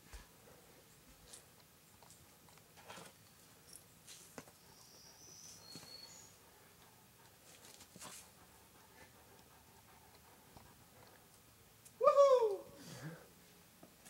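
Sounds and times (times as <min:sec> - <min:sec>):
thin high whistle-like tone: 0:04.6 - 0:06.4
faint taps and scuffs: 0:05.4 - 0:06.1.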